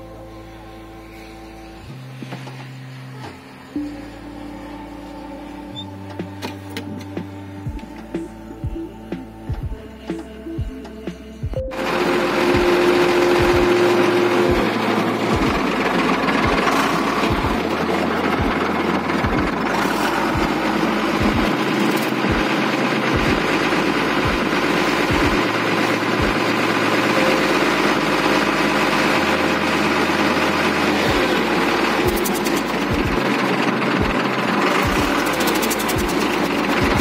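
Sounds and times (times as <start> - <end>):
truck diesel engine idling: 13.8 - 37.0.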